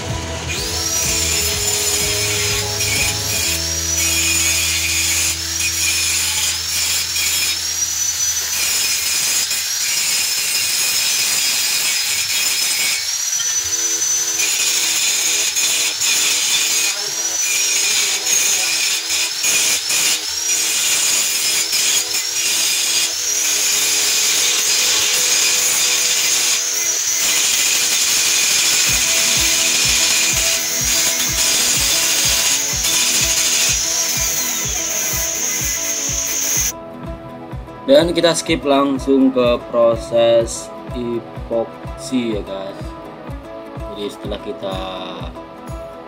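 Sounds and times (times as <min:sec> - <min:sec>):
angle grinder grinding metal: 0:00.0 - 0:36.8.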